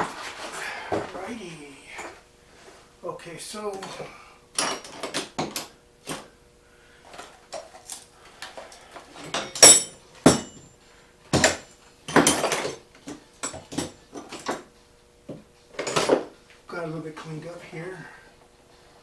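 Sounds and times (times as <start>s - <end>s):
metal tools clinking and knocking: 9.3s - 10.6s.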